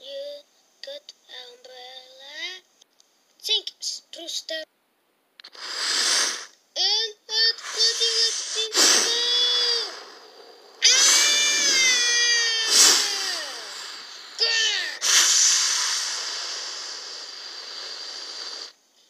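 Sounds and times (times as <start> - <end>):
steady hissing rush: 5.4 - 18.8
child wailing and squealing: 7.5 - 15.4.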